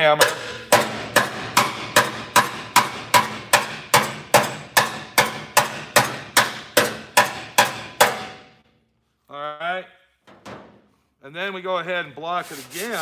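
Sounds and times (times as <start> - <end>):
hammer tapping sheet steel: 0.0 - 8.6.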